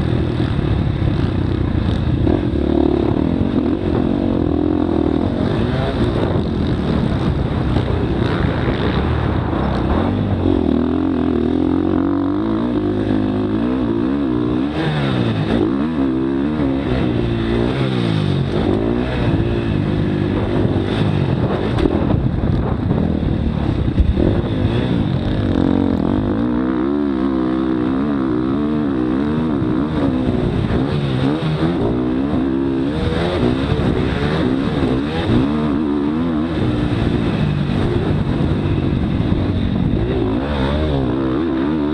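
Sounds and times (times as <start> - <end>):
dirt bike engine revving: 0.0 - 41.9.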